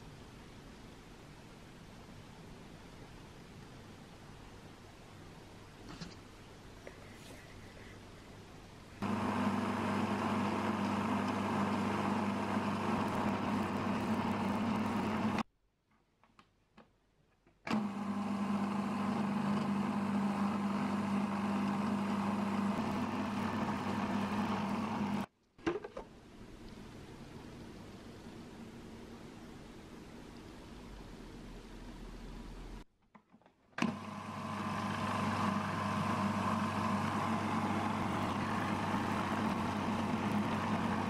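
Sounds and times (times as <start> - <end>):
food processor grinding nuts: 9.0 - 15.4, 17.7 - 25.3, 33.8 - 41.0.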